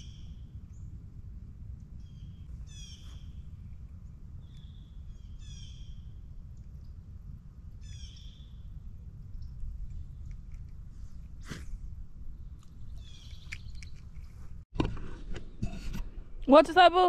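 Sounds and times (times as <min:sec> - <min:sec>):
low outdoor rumble: 0:00.0 - 0:17.0
bird calling: 0:02.1 - 0:03.4, 0:04.5 - 0:06.1, 0:12.7 - 0:14.2.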